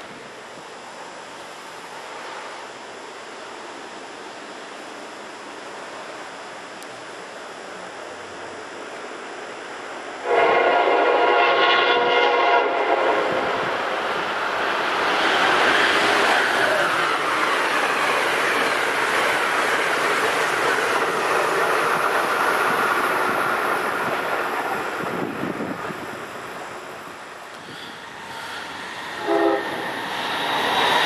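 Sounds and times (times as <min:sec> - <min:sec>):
passenger train rushing past: 0:00.0 - 0:31.0
locomotive horn blast: 0:10.2 - 0:13.7, 0:29.2 - 0:29.8.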